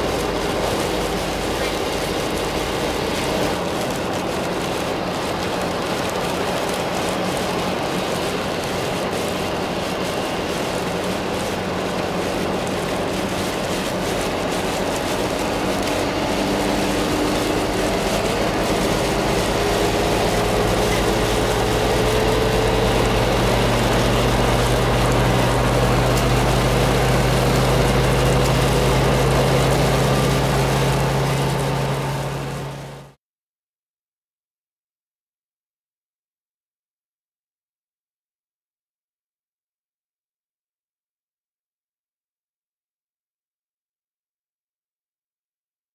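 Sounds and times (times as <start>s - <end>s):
low engine hum: 0.0s - 33.2s
tyres hissing on wet asphalt: 0.0s - 33.2s.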